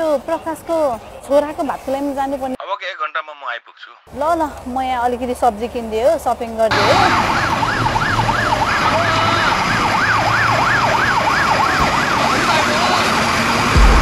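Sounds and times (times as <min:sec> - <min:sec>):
fire engine siren yelping: 0:06.7 - 0:13.8
loud deep low sound: 0:13.7 - 0:14.0.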